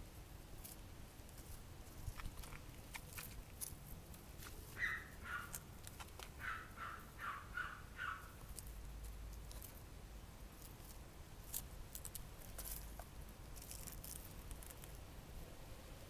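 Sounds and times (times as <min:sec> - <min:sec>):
low outdoor rumble: 0:00.0 - 0:16.0
leaf scraping on concrete: 0:00.5 - 0:06.7, 0:10.5 - 0:15.1.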